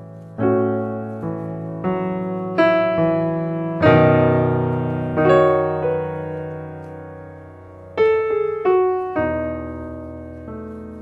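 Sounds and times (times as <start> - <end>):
slow piano chords: 0.0 - 11.0.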